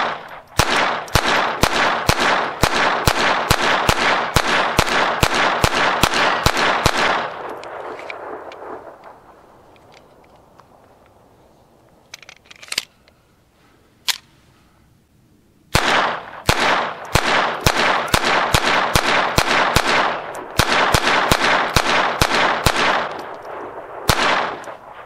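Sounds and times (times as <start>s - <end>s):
pistol shots echoing: 0.0s - 9.3s, 15.7s - 25.0s.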